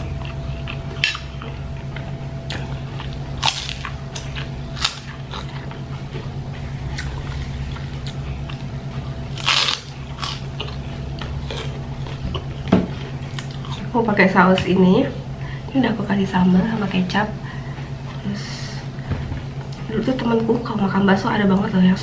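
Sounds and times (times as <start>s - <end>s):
chewing and crunching crackers: 0.0s - 5.9s, 6.9s - 13.9s
steady low hum: 0.0s - 22.0s.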